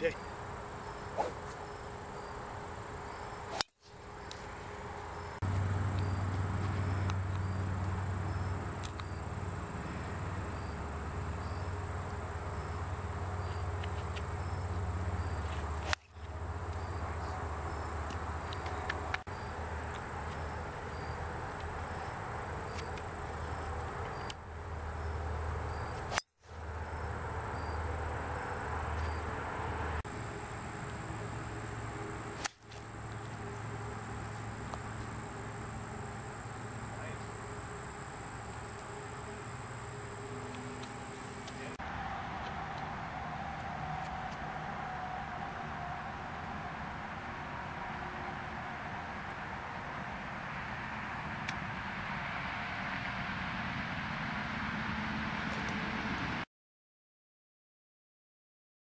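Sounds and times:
insects chirping: 0.0 - 41.8
golf club striking ball: 1.2 - 1.5.

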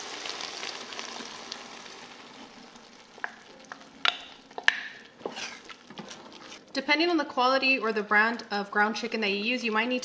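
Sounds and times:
meat sizzling in a pot: 0.0 - 6.7.

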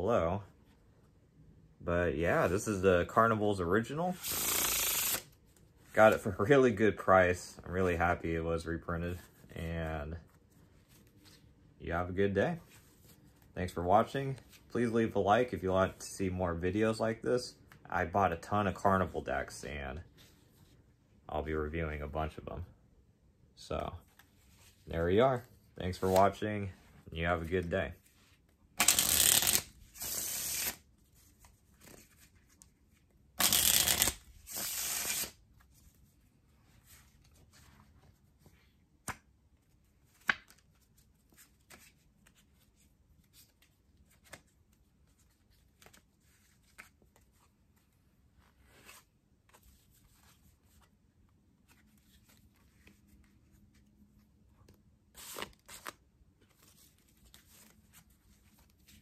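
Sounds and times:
cards riffle-shuffled: 4.1 - 5.4, 24.0 - 26.7, 27.4 - 36.0, 36.8 - 50.9, 54.6 - 59.0
cards cascading: 4.2 - 5.2, 28.8 - 30.8, 33.4 - 35.4.

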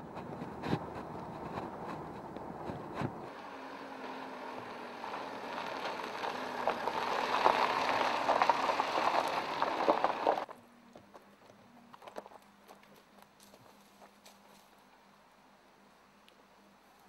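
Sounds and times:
low engine hum: 0.0 - 10.9
tyres crunching on gravel: 0.0 - 14.8.

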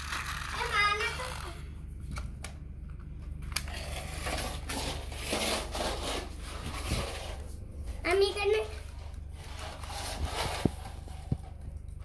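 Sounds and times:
plastic toy scraping on concrete: 0.0 - 1.6, 3.7 - 7.5, 9.0 - 11.4
steady low hum: 0.0 - 12.0.

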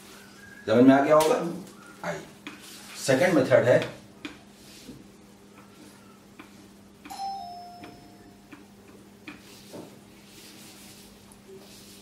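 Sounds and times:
eraser rubbing whiteboard: 2.5 - 3.0, 9.2 - 12.0
ringing chime: 7.1 - 8.4.

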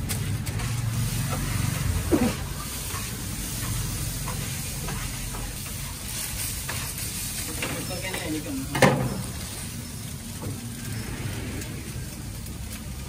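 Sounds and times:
frying sizzle: 0.0 - 13.0.

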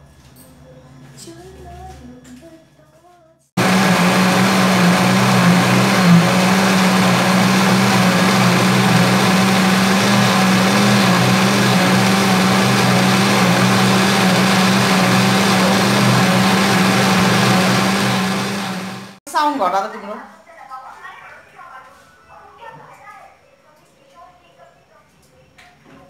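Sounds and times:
mixer grinder motor whining: 3.6 - 19.2.

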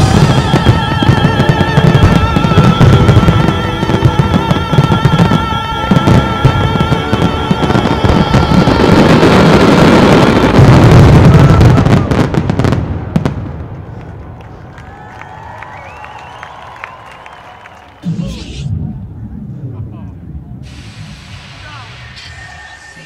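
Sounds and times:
orchestral music: 0.0 - 10.6
fireworks exploding: 0.0 - 23.0.

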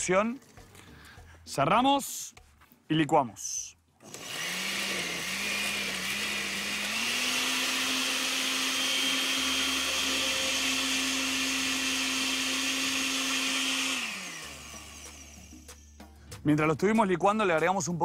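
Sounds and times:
electric blender motor humming: 4.0 - 15.7.

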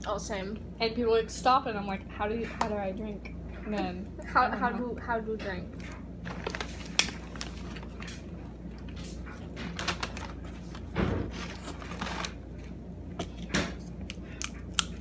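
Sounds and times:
steady low hum: 0.0 - 15.0
paper food wrapper rustling: 6.2 - 8.9, 9.7 - 12.7.

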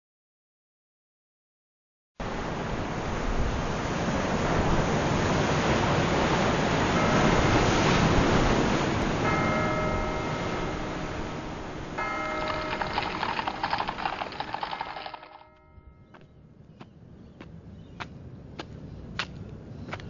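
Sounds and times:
surf breaking over rocks: 2.2 - 15.4
sustained ringing tones: 6.9 - 16.2.

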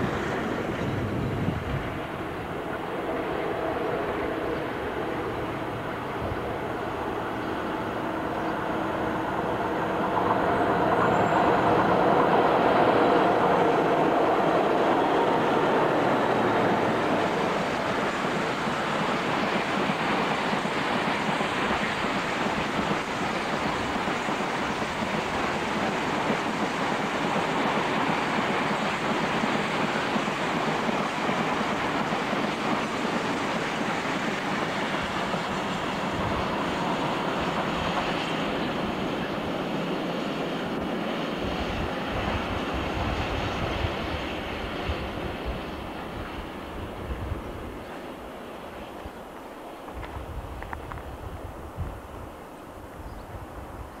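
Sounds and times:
train wheels clattering on rails: 0.0 - 53.2
diesel locomotive engine: 0.0 - 54.0.

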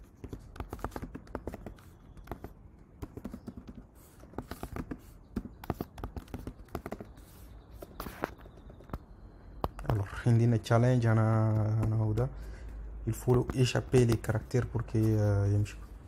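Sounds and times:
computer keyboard typing: 0.1 - 7.1.

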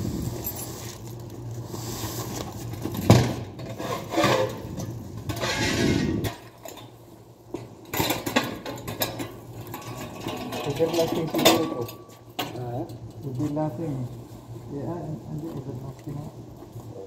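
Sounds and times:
cardboard box scraping on tiled floor: 3.7 - 4.7.

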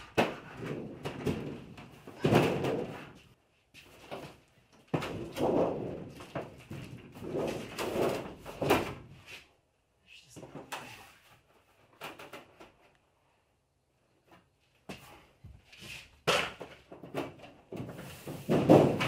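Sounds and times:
wall panel knocking and rattling: 0.0 - 3.4, 4.0 - 9.2, 16.2 - 19.0.

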